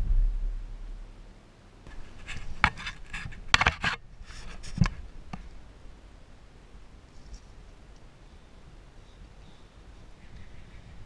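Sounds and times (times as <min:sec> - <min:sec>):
hands rustling and scraping parts: 0:01.9 - 0:05.5.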